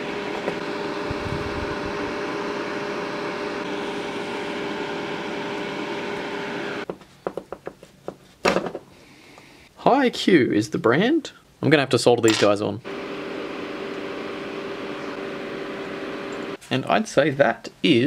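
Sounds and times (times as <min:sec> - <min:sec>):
electric fan whirring: 0:00.0 - 0:06.9, 0:12.8 - 0:16.6.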